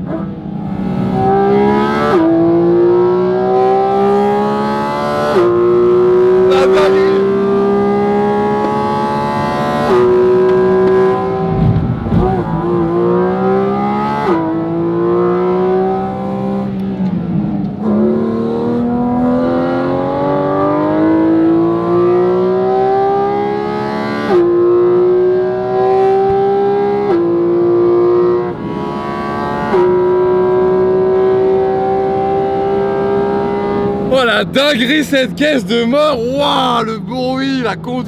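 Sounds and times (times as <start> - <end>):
car engine revving high: 0.0 - 38.0.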